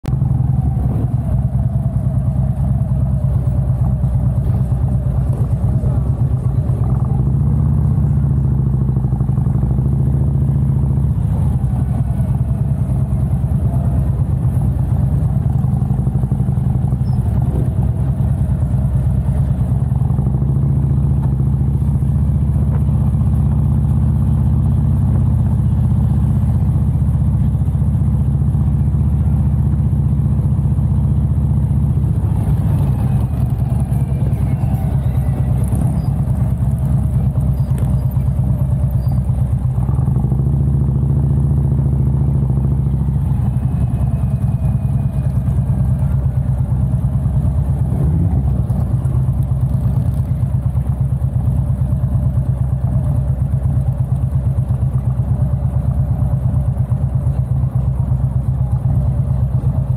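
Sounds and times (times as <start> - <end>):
motorcycle engine running: 0.0 - 59.9
other engines rising and falling: 31.9 - 40.6.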